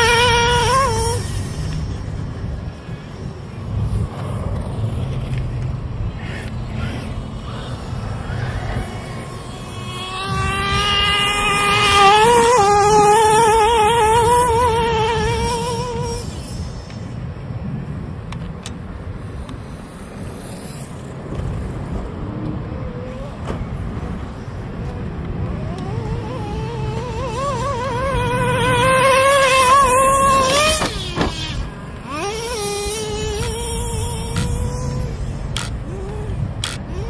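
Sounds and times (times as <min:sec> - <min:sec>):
nitro engine revving: 0:00.0 - 0:17.2, 0:19.5 - 0:37.0.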